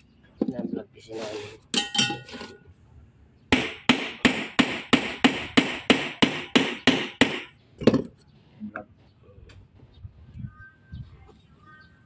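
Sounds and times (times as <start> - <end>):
hammer striking metal cover: 1.8 - 2.3.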